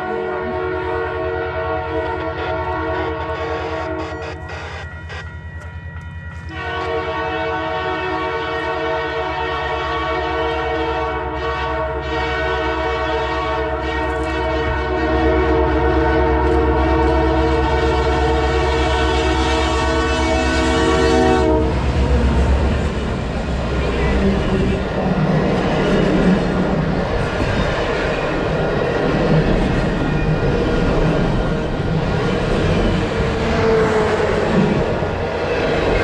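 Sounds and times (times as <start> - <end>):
train air horn blast: 0.0 - 5.2, 6.5 - 22.6
locomotive rumble: 20.8 - 36.0.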